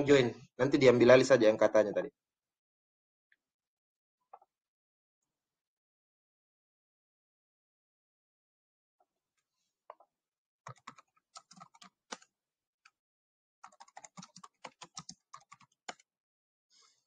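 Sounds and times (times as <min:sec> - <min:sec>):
typing on computer keyboard: 0:10.7 - 0:12.3, 0:13.6 - 0:16.0.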